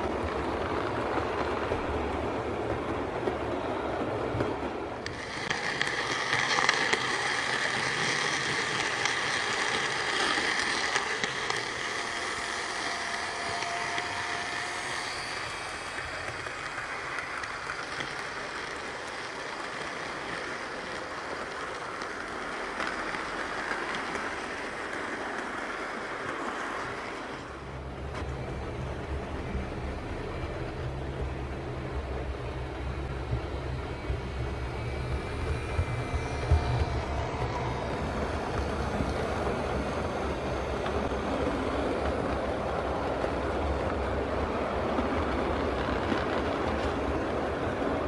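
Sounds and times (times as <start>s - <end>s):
model train wheels rattling on rail: 4.9s - 29.1s.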